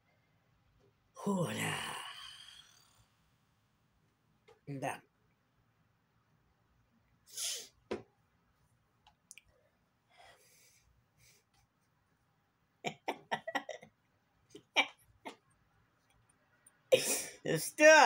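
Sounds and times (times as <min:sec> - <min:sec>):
man chuckling: 0:12.9 - 0:13.8, 0:14.5 - 0:15.4.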